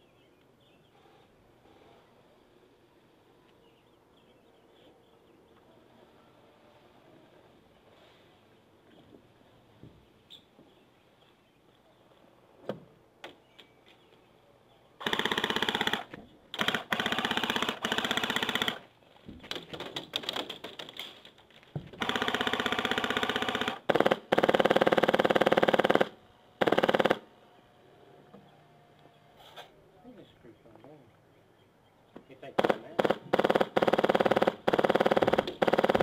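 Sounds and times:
airsoft rifle full-auto bursts: 15.0s - 18.9s, 22.0s - 27.3s, 32.6s - 36.0s.

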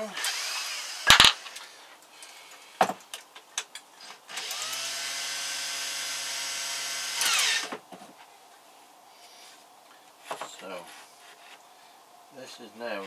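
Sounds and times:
power drill spinning: 0.0s - 1.6s, 4.1s - 7.8s.

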